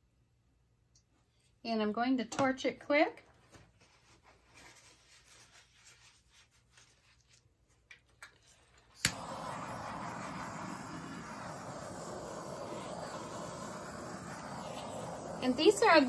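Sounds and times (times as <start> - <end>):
gas torch hissing: 8.9 - 16.0
gas torch igniter click: 9.0 - 15.6.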